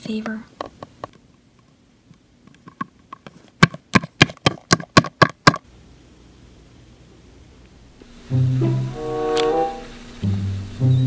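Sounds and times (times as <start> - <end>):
faint steady hum: 0.0 - 11.0
toy footstep taps: 2.5 - 5.6.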